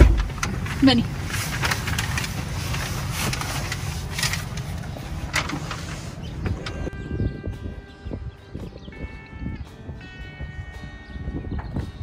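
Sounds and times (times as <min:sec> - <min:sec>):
rustling: 0:00.0 - 0:06.2.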